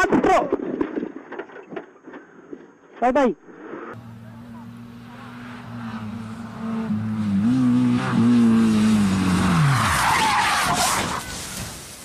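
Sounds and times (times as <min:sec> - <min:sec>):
rally car engine: 0:04.0 - 0:11.8
tyre squeal: 0:09.0 - 0:11.7.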